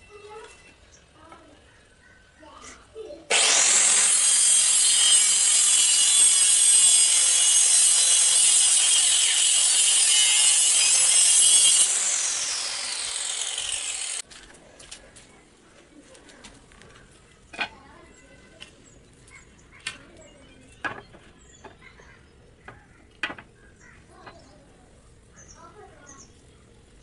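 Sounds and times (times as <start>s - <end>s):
circular saw cutting wood: 3.3s - 14.2s.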